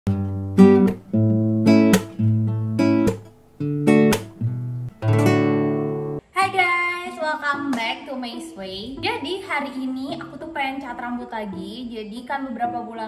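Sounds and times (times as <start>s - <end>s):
acoustic guitar strumming: 0.1s - 6.2s.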